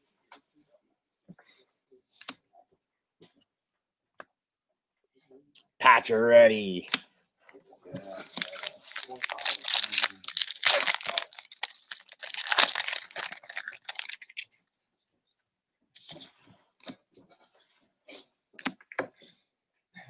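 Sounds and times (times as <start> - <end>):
cards rustling: 8.2 - 14.5
foil wrapper tearing and crinkling: 8.3 - 14.5.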